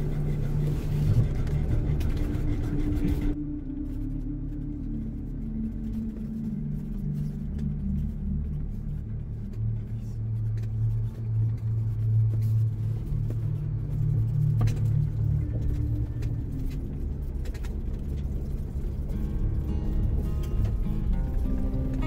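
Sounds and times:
background music: 0.0 - 22.0
vehicle driving on gravel: 9.2 - 22.0.

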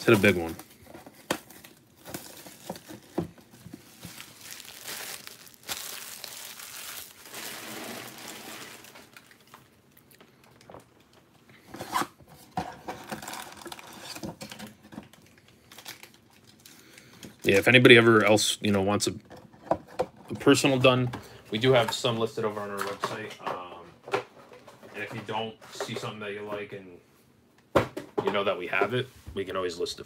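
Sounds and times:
cellophane crinkling and tearing: 0.0 - 11.1, 13.0 - 17.8.

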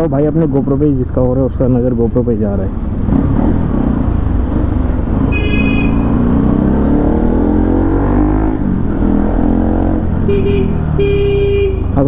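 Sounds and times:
motorcycle engine revving: 2.9 - 12.0
vehicle horn beep: 5.3 - 6.2, 10.3 - 12.0.

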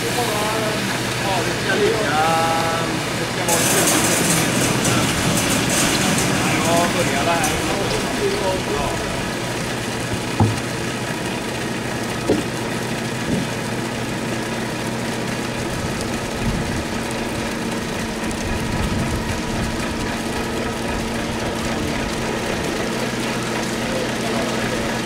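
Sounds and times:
truck engine humming: 0.0 - 25.0
wet concrete running down chute: 0.0 - 25.0
short knocks: 10.0 - 11.1, 12.2 - 13.7.

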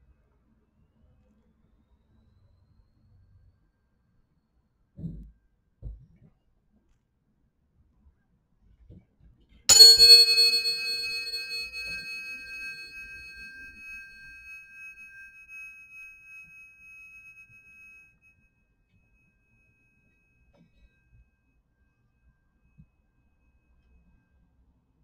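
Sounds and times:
tuning forks clanging and ringing: 9.7 - 14.9.

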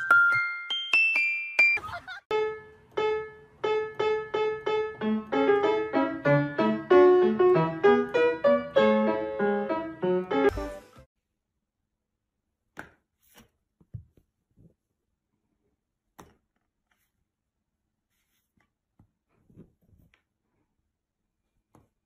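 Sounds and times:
piano music: 0.0 - 11.1.

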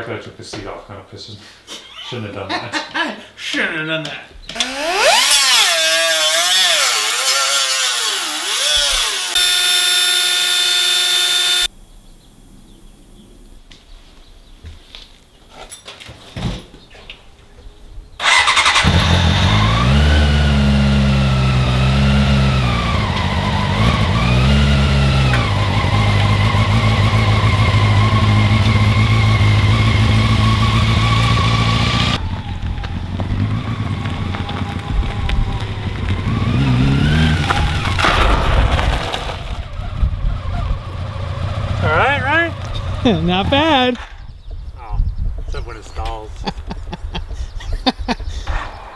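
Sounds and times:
motorcycle engine revving and idling: 18.2 - 38.1, 39.3 - 44.0.

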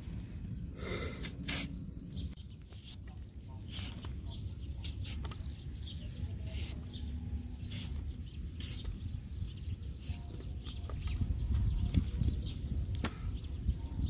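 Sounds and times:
wind rumble on microphone: 8.2 - 14.0.

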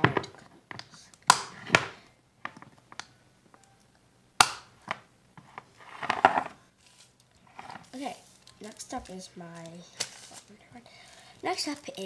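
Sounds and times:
container scraping on stone: 7.4 - 8.0.

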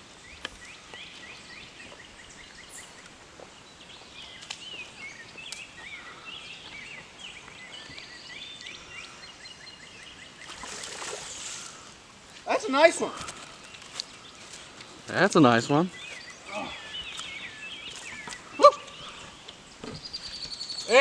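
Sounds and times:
faint outdoor hiss: 0.0 - 21.0
songbirds chirping and warbling: 0.0 - 21.0.

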